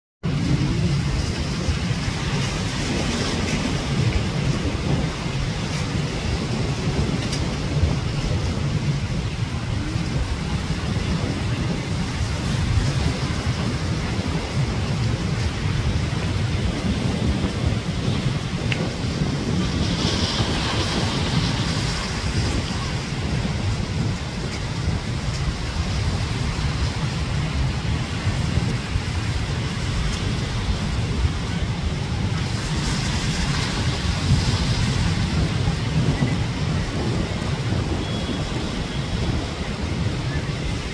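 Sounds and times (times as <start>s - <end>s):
surf breaking on a beach: 0.2s - 40.9s
wind buffeting the microphone: 0.2s - 40.9s.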